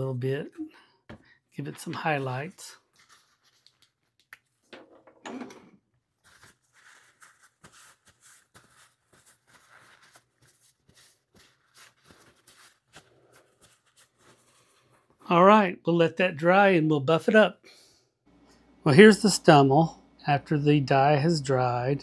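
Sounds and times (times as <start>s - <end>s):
paper towel rustling and rubbing: 1.7s - 4.2s, 6.2s - 15.2s.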